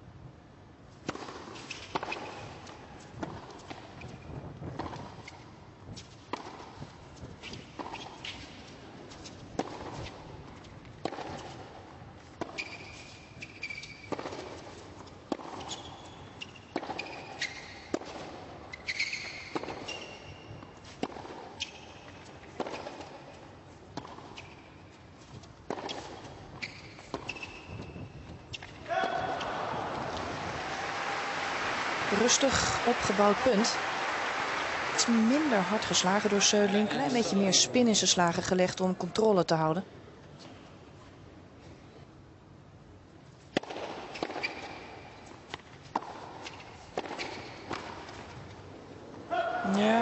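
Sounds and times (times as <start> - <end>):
tennis ball bouncing: 1.0 - 5.4, 6.0 - 6.8, 9.1 - 24.9, 25.6 - 38.0, 43.5 - 48.4
sneaker squeaks: 1.6 - 2.8, 7.4 - 9.3, 12.4 - 14.7, 15.3 - 23.3, 24.0 - 25.0, 25.7 - 29.8, 44.0 - 45.1, 46.4 - 47.9
tennis ball racket hits: 25.6 - 37.2, 43.5 - 48.4.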